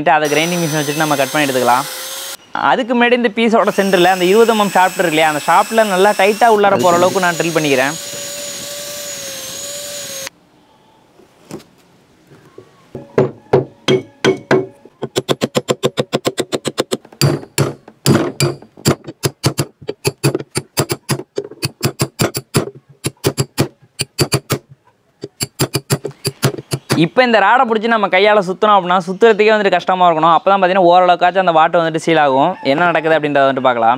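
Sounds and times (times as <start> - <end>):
angle grinder whining: 0.2 - 2.4, 3.6 - 10.3
sharp hammering knocks: 13.2 - 27.0.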